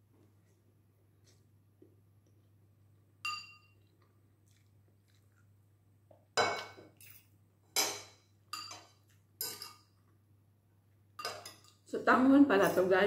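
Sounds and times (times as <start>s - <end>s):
cutlery clinking on a plate: 6.4s - 9.9s, 11.2s - 11.8s.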